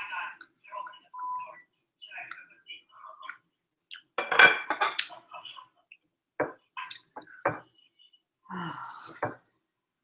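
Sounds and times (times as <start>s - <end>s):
knife and fork clinking on plate: 4.2s - 5.1s.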